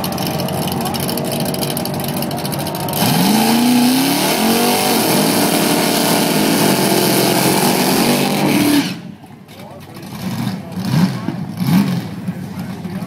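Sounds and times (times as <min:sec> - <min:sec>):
spinning tyres hissing: 0:00.0 - 0:09.3
race car engine revving: 0:00.0 - 0:13.0.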